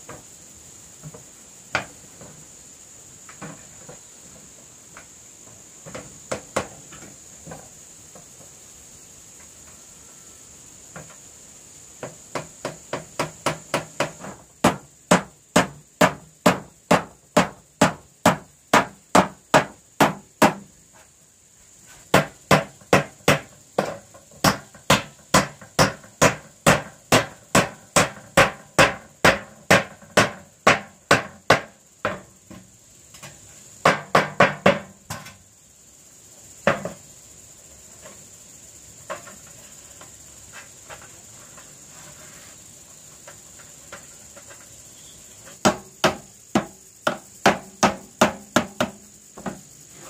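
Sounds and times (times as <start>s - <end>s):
hammer nailing metal roofing sheet: 12.3s - 20.7s, 22.1s - 32.2s, 33.8s - 35.3s, 45.6s - 49.6s.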